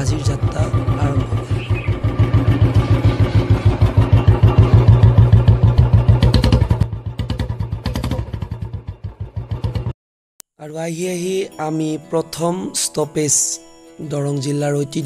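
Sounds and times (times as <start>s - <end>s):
motorcycle engine thumping: 0.0s - 10.0s.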